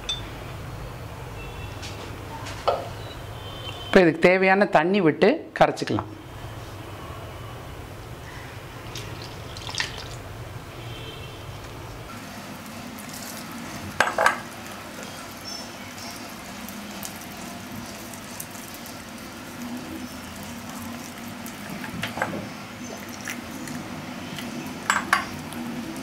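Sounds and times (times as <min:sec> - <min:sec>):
hand mixing wet batter: 0:08.8 - 0:10.2, 0:14.8 - 0:21.9.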